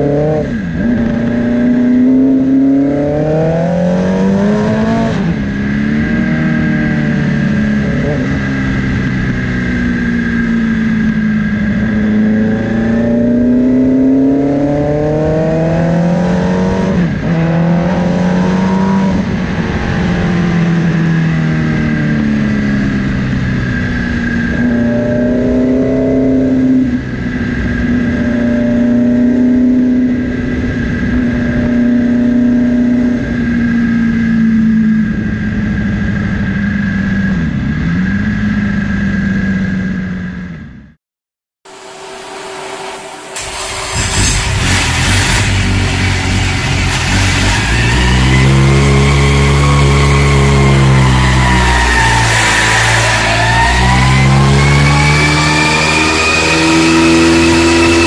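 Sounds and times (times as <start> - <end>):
motorcycle engine revving: 0.0 - 40.9, 41.7 - 58.0
steady high whine: 41.7 - 58.0.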